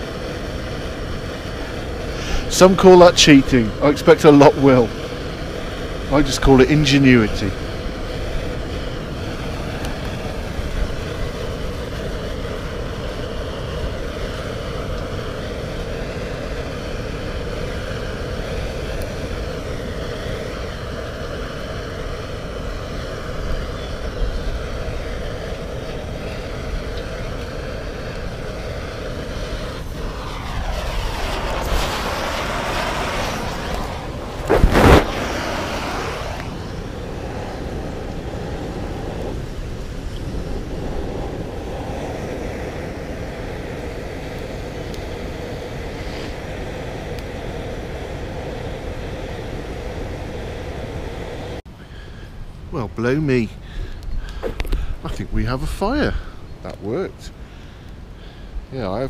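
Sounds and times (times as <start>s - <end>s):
blowtorch flame burning: 0.0s - 59.0s
broad rush of noise: 0.0s - 59.0s
loud short burst: 30.4s - 36.7s.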